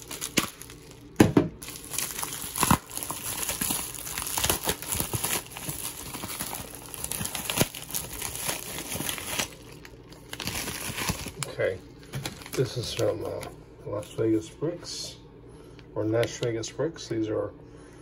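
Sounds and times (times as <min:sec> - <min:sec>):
plastic bags crinkling: 0:00.0 - 0:14.2.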